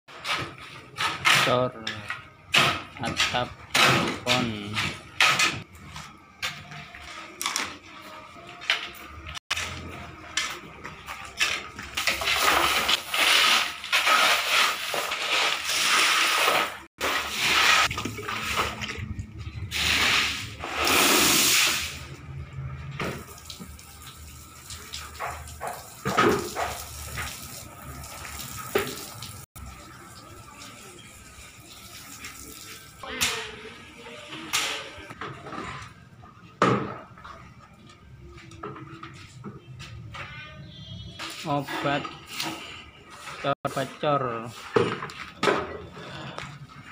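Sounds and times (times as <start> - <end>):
hose water splashing on sand: 12.0 - 18.8, 19.7 - 22.0.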